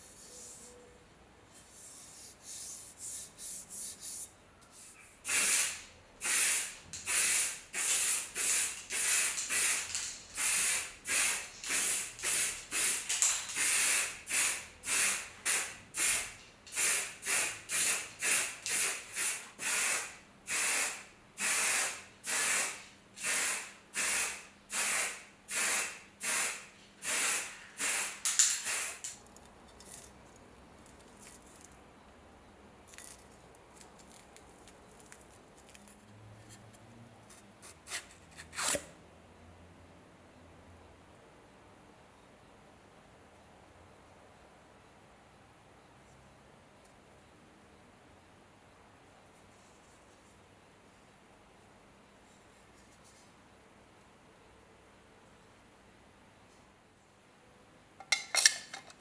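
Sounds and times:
spray paint can hissing: 0:05.2 - 0:29.2.

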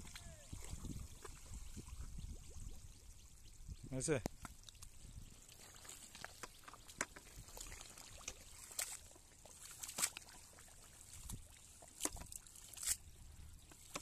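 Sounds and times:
water trickling off a net: 0:04.6 - 0:14.0
squelches and slaps in mud: 0:05.8 - 0:13.0.

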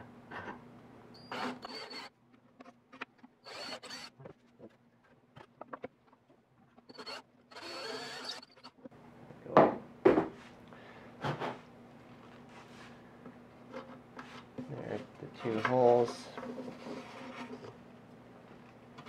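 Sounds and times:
cordless drill whining: 0:01.2 - 0:02.1, 0:03.4 - 0:04.2, 0:06.9 - 0:08.8.

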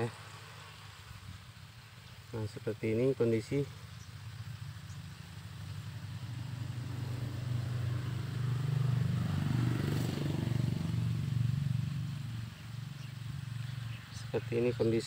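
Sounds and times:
motorcycle engine passing by: 0:04.0 - 0:14.1.

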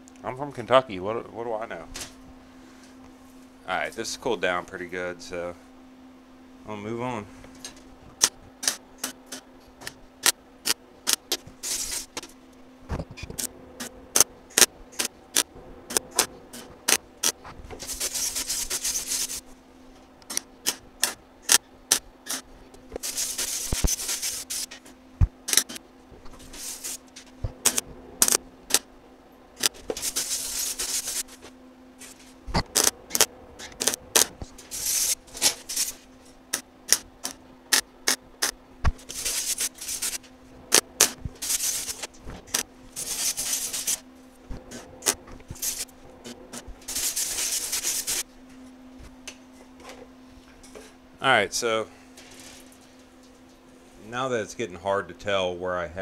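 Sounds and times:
steady low hum: 0:00.0 - 0:56.0
welding arc zaps and crackles: 0:07.7 - 0:19.5, 0:20.2 - 0:28.9, 0:29.6 - 0:48.3.

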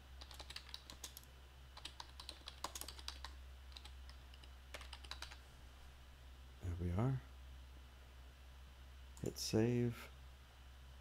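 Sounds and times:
computer keyboard typing: 0:00.2 - 0:05.4.

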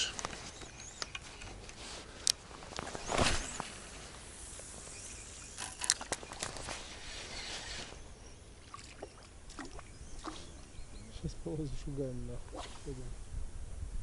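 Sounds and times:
fishing rod swish: 0:12.5 - 0:13.0.

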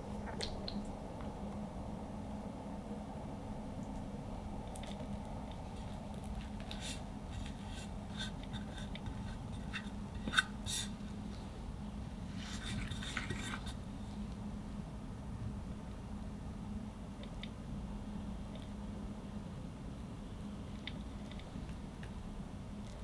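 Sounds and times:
spatula scraping cream: 0:05.8 - 0:11.0.

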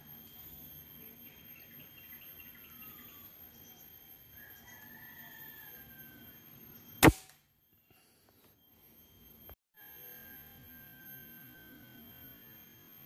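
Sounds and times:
air rifle shot: 0:07.0 - 0:07.3.

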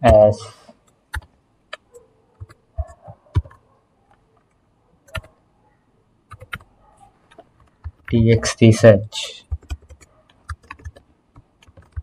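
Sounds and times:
computer keyboard keystrokes: 0:00.8 - 0:01.8, 0:02.4 - 0:03.6, 0:04.4 - 0:05.3, 0:06.3 - 0:06.7, 0:09.5 - 0:12.0.

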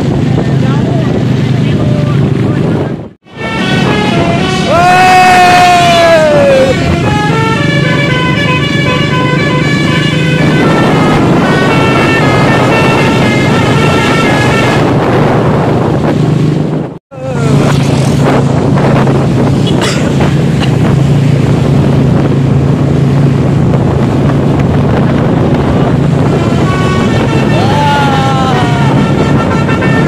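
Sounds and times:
engine hum: 0:00.0 - 0:30.0
wind buffeting the microphone: 0:00.0 - 0:30.0
bus horn playing a tune: 0:03.3 - 0:04.8, 0:06.7 - 0:15.2, 0:26.0 - 0:30.0.

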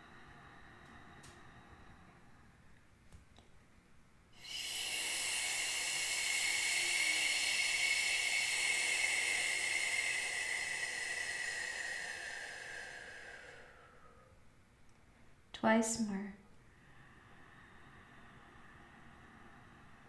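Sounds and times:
woman exhaling shhh: 0:04.4 - 0:14.4.

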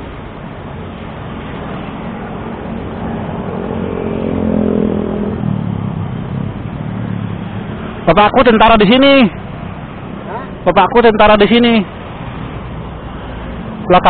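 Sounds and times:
vehicle engine passing by: 0:00.9 - 0:08.1.

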